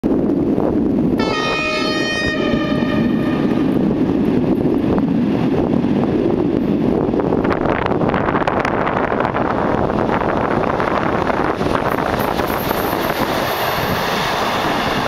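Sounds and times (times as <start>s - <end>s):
wind rumble on microphone: 0.0s - 15.0s
train horn blast: 1.2s - 3.8s.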